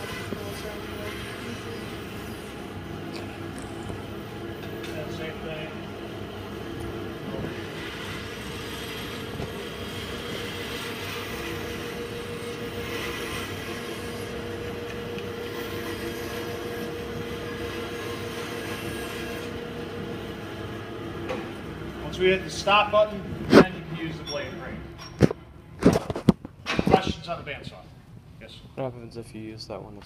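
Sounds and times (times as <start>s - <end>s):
bandsaw cutting wood: 0.0s - 2.6s, 7.4s - 14.6s, 15.3s - 19.6s.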